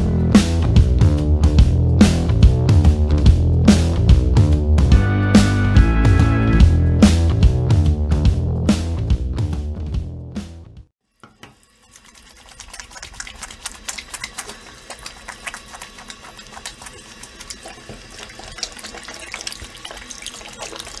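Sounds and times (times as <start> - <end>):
water running from a tap: 11.1 - 21.0
hands splashing water: 11.8 - 21.0.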